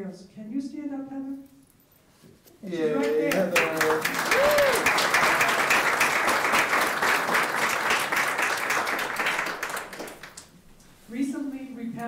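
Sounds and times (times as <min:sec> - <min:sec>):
audience applauding: 0:03.0 - 0:10.5.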